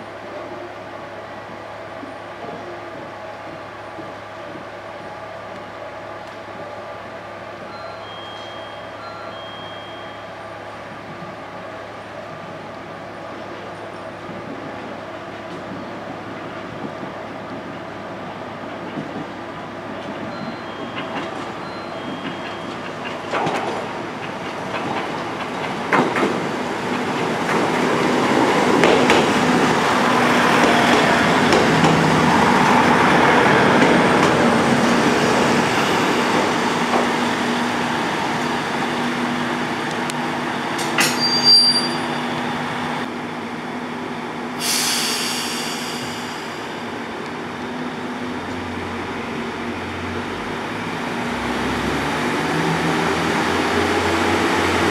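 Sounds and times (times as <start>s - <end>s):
diesel train passing: 0.0s - 54.9s
brake squeal and clanks: 20.3s - 23.7s, 40.7s - 42.5s
sharp hiss of air: 44.6s - 47.1s.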